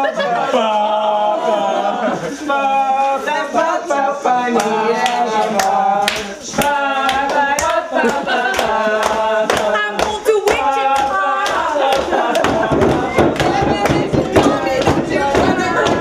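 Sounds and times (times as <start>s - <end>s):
group of men singing: 0.0s - 16.0s
hands clapping a steady beat: 4.2s - 16.0s.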